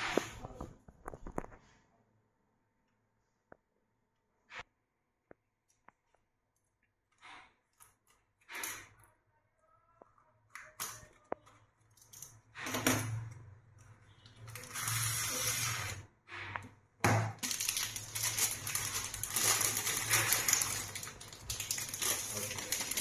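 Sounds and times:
cellophane crinkling: 0:14.4 - 0:16.0, 0:17.4 - 0:23.0.

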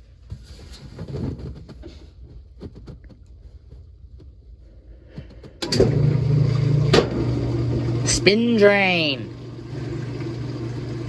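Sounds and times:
drain pump humming: 0:05.6 - 0:11.0.

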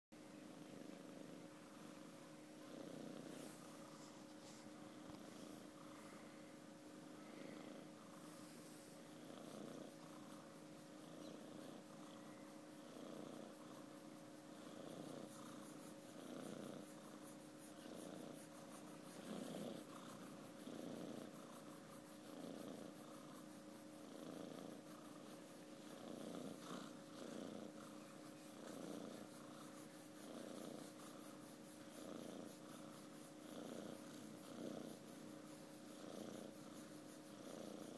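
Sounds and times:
kitten purring softly: 0:00.2 - 0:37.9.

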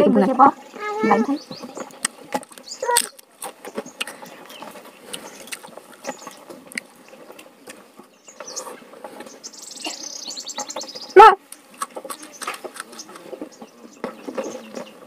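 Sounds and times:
bird chirping: 0:00.2 - 0:15.0
chewing and lip smacks: 0:01.9 - 0:07.8, 0:11.8 - 0:13.4.

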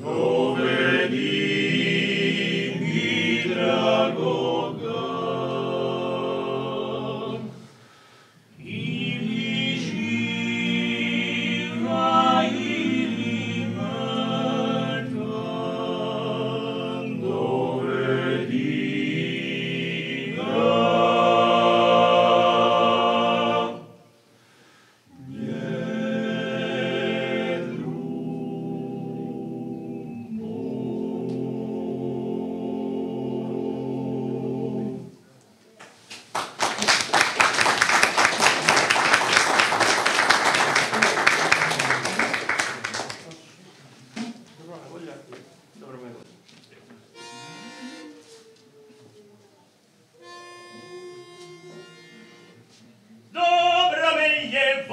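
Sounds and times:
male vocal group singing a cappella: 0:00.0 - 0:07.8, 0:08.5 - 0:24.0, 0:25.1 - 0:35.1, 0:53.3 - 0:54.9.

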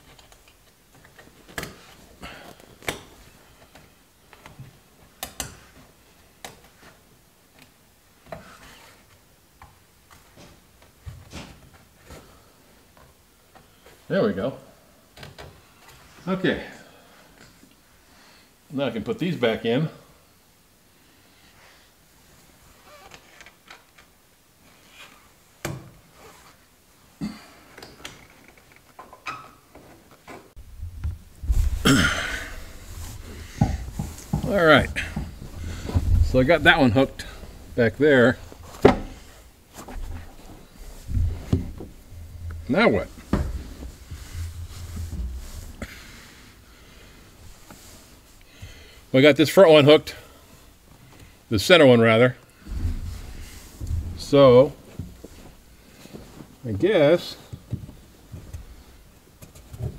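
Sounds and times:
cloth rustling: 0:30.6 - 0:48.4, 0:52.5 - 0:56.6.

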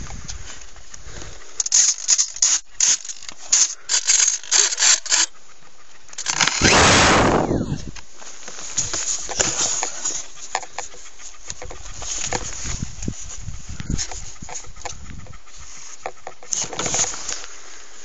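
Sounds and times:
rushing whoosh falling in pitch: 0:06.6 - 0:07.9.

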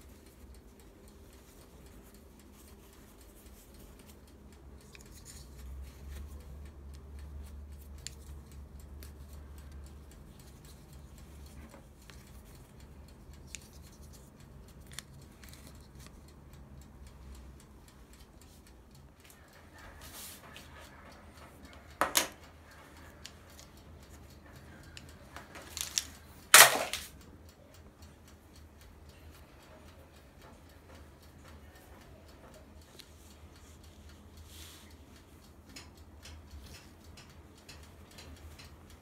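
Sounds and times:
plastic clips snapping: 0:25.6 - 0:27.1.

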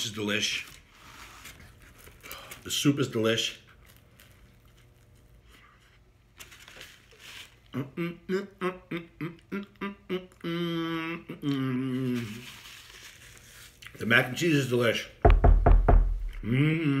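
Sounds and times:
man humming: 0:07.8 - 0:12.5, 0:16.2 - 0:17.0.

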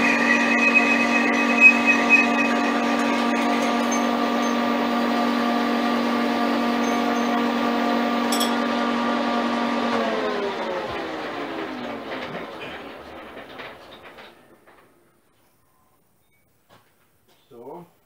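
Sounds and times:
metal lathe gear whine: 0:00.0 - 0:14.4.

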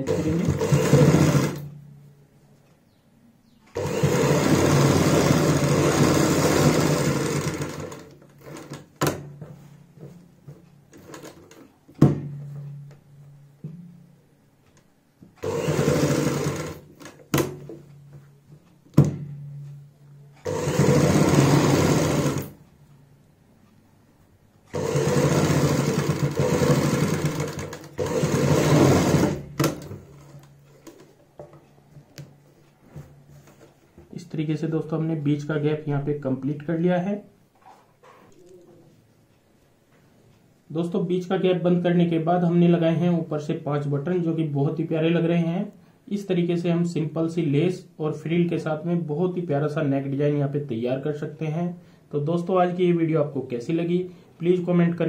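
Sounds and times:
sewing machine stitching: 0:00.0 - 0:01.7, 0:03.7 - 0:09.2, 0:15.4 - 0:17.6, 0:20.4 - 0:22.6, 0:24.7 - 0:31.0.

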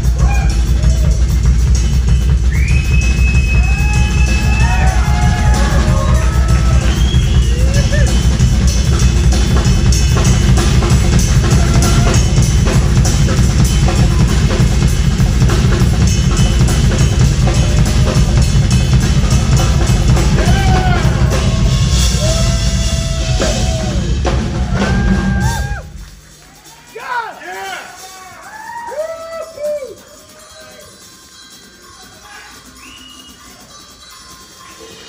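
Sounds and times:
sliding lead notes: 0:00.0 - 0:26.7
rock band playing live: 0:00.0 - 0:26.9
busy drum kit: 0:00.0 - 0:30.6.

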